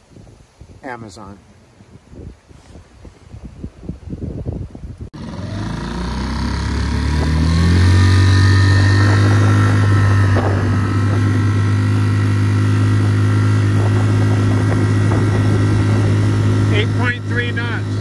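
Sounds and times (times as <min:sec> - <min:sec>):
outboard motor running: 0:05.2 - 0:18.0.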